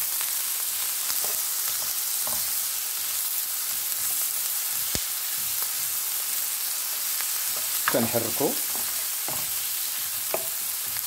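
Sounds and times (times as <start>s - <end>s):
onions sizzling in a frying pan: 0.0s - 11.0s
wooden spoon scraping a pan: 6.9s - 11.0s.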